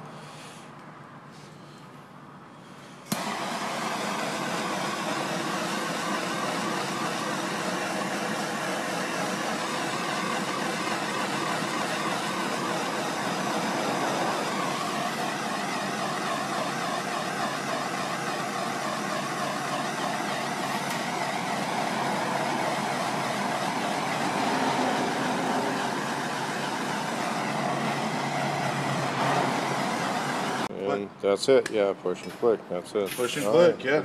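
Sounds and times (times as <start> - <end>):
gas torch flame hissing: 3.0 - 30.7
shop background noise: 7.5 - 34.0.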